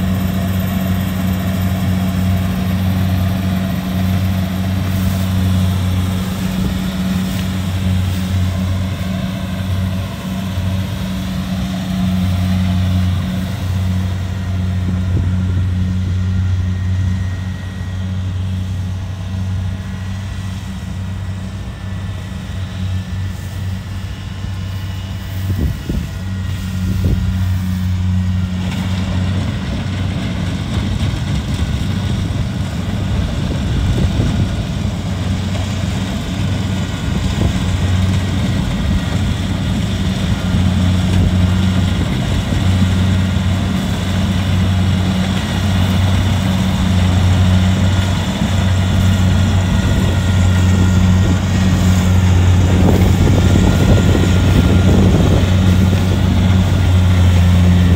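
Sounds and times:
diesel engine hum: 0.0 - 57.9
whirr of harvester threshing gear: 0.0 - 57.9.

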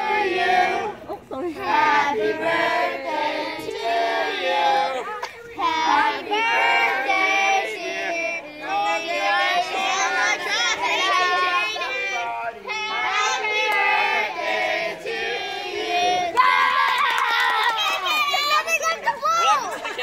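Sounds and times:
children and women singing: 0.0 - 16.6.

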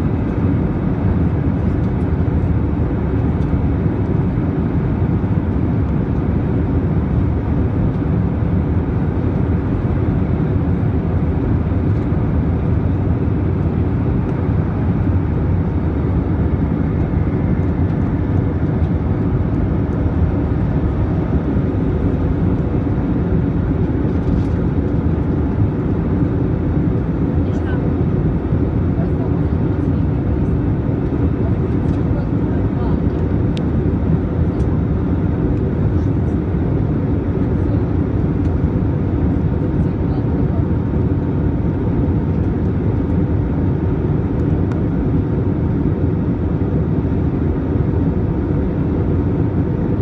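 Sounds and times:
jet engine rush in cabin: 0.0 - 50.0.

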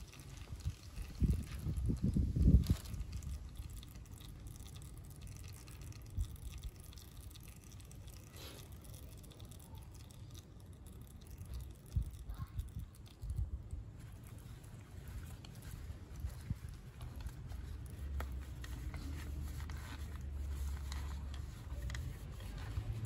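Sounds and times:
oil trickling into plastic pan: 0.0 - 23.0
faint low rumble: 8.9 - 23.0.

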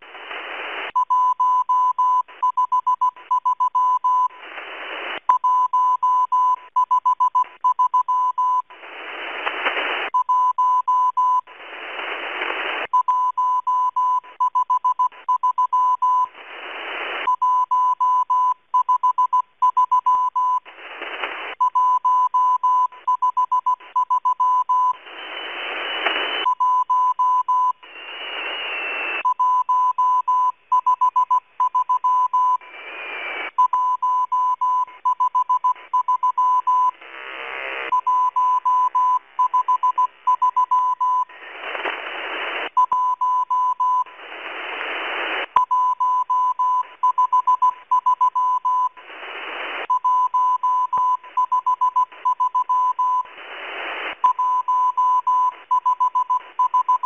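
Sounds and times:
radio band noise hiss: 0.0 - 1.0, 4.3 - 5.3, 8.7 - 10.1, 11.4 - 12.9, 16.2 - 17.3, 20.6 - 21.6, 24.8 - 26.5, 27.7 - 29.2, 32.6 - 33.6, 36.9 - 38.0, 41.2 - 42.8, 44.0 - 45.6, 48.9 - 49.9, 53.2 - 54.2
morse code tone: 21.6 - 37.0, 37.9 - 41.3, 42.8 - 44.1, 45.5 - 49.0, 49.9 - 57.0.

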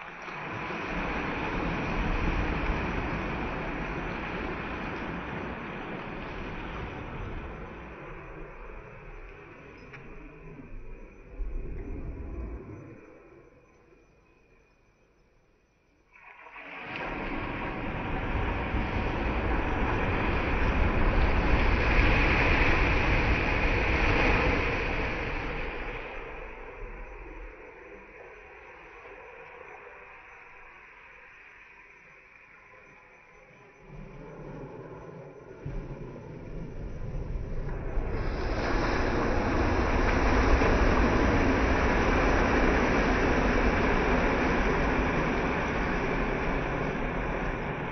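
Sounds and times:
surf on a shingle beach: 0.0 - 13.4, 16.4 - 47.9
wind: 0.0 - 47.9
waves washing up pebble beach: 16.6 - 26.5, 37.7 - 47.9
low rumble: 33.9 - 47.9.

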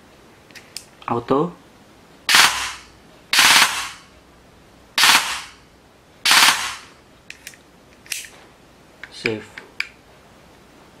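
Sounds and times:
airsoft gun full-auto bursts: 2.3 - 4.0, 5.0 - 5.6, 6.2 - 6.9.

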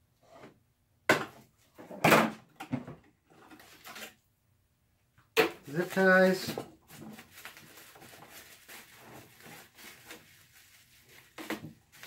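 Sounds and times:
plastic packing crinkling: 5.6 - 12.0.

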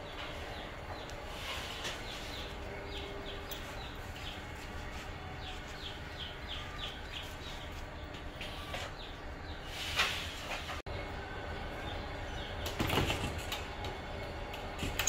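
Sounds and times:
chicks peeping: 0.0 - 9.7.

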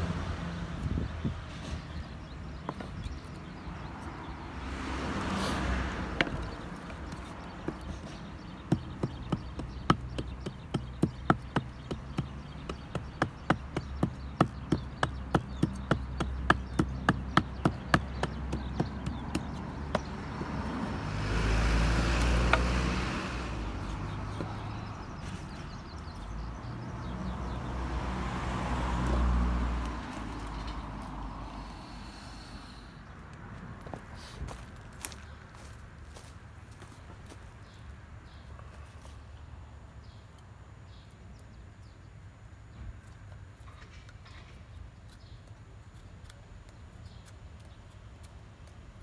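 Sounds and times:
wind buffeting microphone: 0.7 - 3.6.

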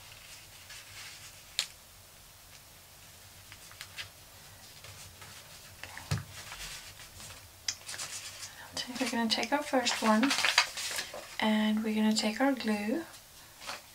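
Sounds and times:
paper folding and creasing: 0.0 - 1.7, 3.5 - 4.1, 4.7 - 11.4.

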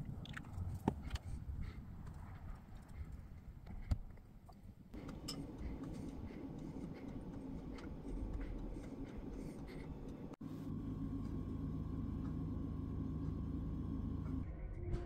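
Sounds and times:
steady low hum: 4.7 - 14.8.

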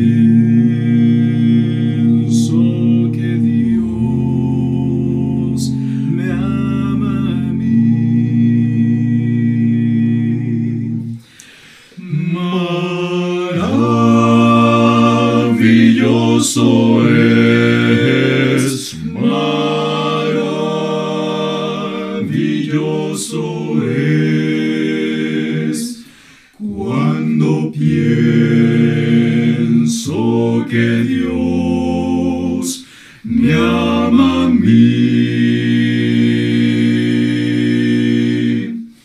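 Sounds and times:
male vocal quartet singing a hymn: 0.0 - 39.0.

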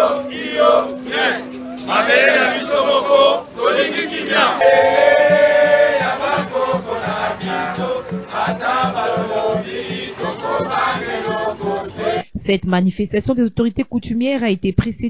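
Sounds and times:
crowd singing and chanting: 0.0 - 12.3
steady low beat: 4.4 - 12.5.

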